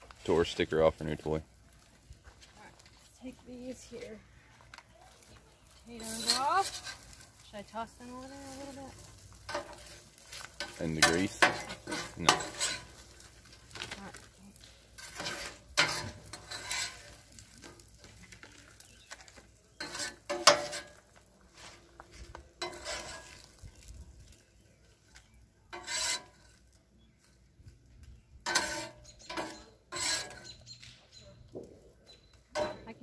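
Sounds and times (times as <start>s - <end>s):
grease sizzling: 0.0s - 33.0s
metal spatula scraping griddle: 5.7s - 24.4s, 25.2s - 27.1s, 28.4s - 31.1s, 32.5s - 33.0s.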